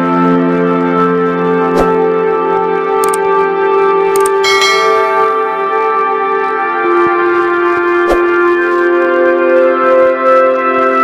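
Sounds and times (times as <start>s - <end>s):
quick clicks: 4.2s - 4.4s
bright bell ding: 4.2s - 6.4s.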